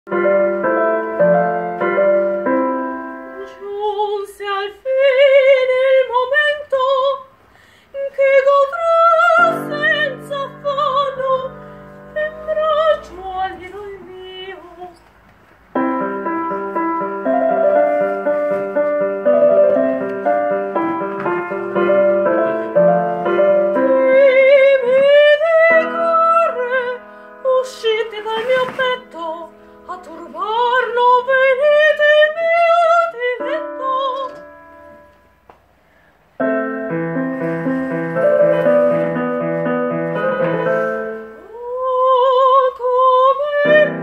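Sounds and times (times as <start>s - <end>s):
piano accompaniment: 0.0s - 7.3s, 8.0s - 44.0s
soprano singing operatically: 3.3s - 15.0s, 22.7s - 34.5s, 40.1s - 44.0s.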